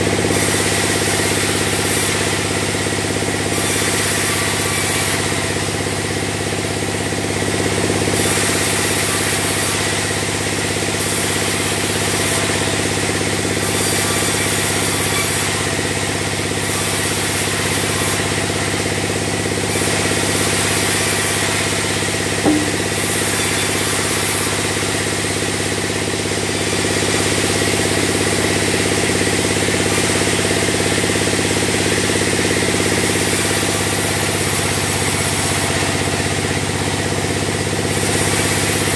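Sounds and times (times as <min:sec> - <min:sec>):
saw blade hissing through log: 0:00.0 - 0:36.7, 0:37.3 - 0:38.9
short sharp knock: 0:22.4 - 0:23.4.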